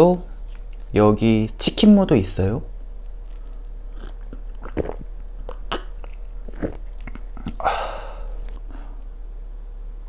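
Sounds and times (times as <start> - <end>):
person gulping and swallowing: 3.2 - 8.8.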